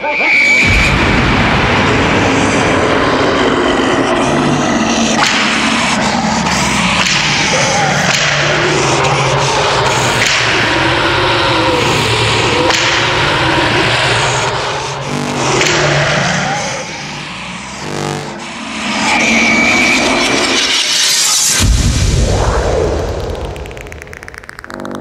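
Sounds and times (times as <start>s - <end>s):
steady high tone: 15.0s - 18.6s.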